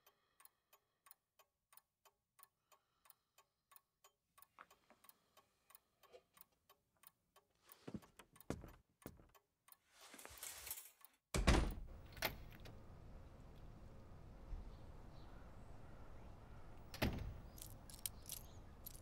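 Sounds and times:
wall clock ticking: 0.0 - 9.9
outdoor background noise: 10.0 - 19.0.

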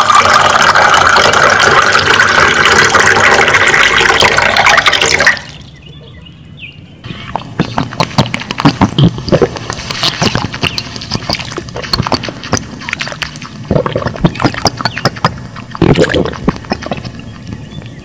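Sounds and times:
water splashing and sloshing: 7.2 - 18.0.

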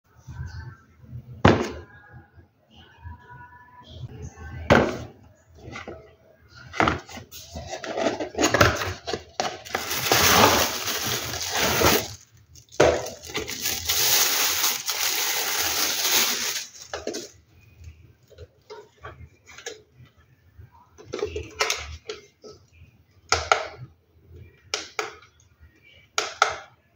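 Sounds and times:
plastic bag crinkling: 9.5 - 17.3.

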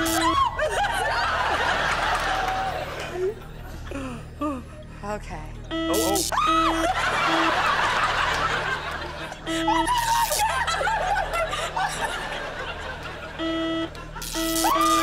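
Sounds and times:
game buzzer: 0.0 - 0.4, 5.7 - 7.8, 9.5 - 10.4, 13.4 - 15.0
audience laughter: 0.3 - 3.9, 6.6 - 14.3.

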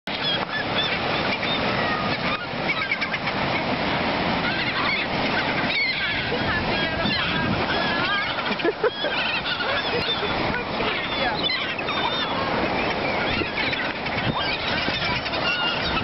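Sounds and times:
breaking surf: 0.1 - 16.0
gulls squawking: 0.1 - 16.0.

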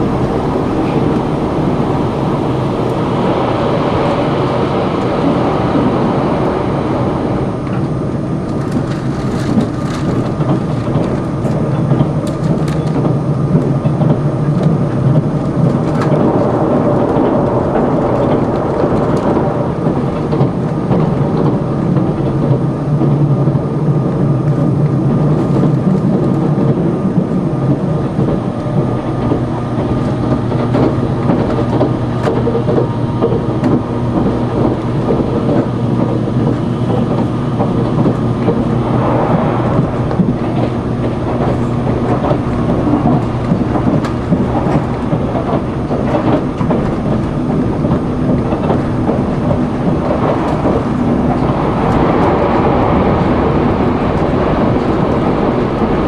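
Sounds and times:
low hum: 0.0 - 12.3, 28.5 - 52.0
train wheels rumbling on rails: 0.0 - 56.0.

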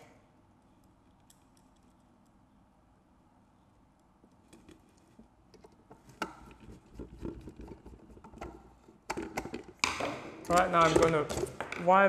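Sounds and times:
plastic handling noise: 4.5 - 12.0.

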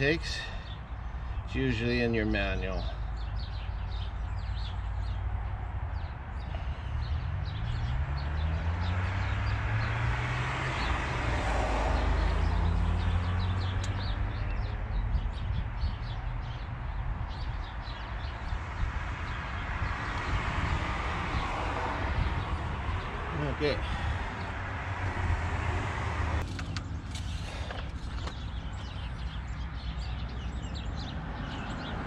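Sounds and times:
birds chirping: 0.0 - 32.0
vehicle engine passing by: 6.6 - 15.2, 18.7 - 27.7.

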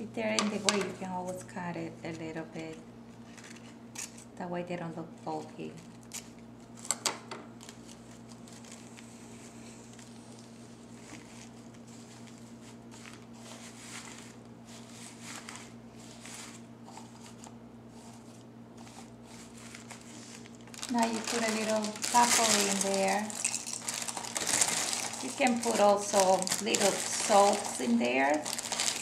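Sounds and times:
low steady hum: 0.0 - 29.0
soft rustling of petals: 7.6 - 29.0.

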